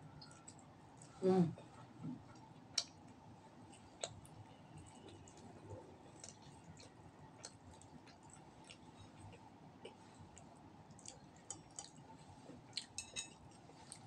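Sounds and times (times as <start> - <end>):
eating clicks and smacks: 2.3 - 12.1.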